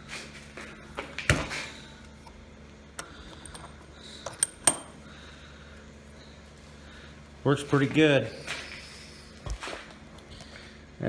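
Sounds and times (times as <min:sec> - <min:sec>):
workshop background noise: 0:00.0 - 0:05.2.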